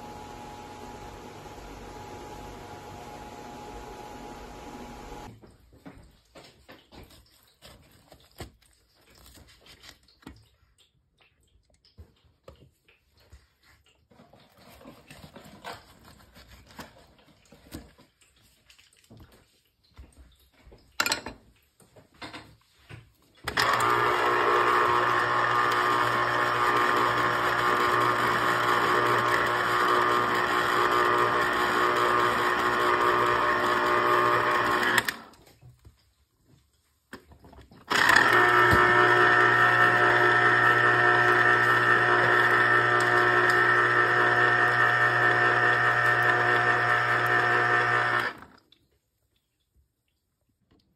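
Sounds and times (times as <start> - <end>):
electric juicer motor humming: 0.0 - 5.3, 23.5 - 35.4, 37.9 - 48.6.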